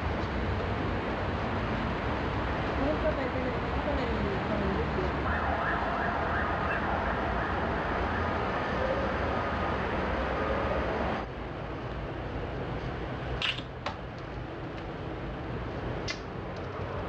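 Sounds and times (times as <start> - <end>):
distant city traffic hum: 0.0 - 17.0
faint siren wailing: 5.2 - 11.2.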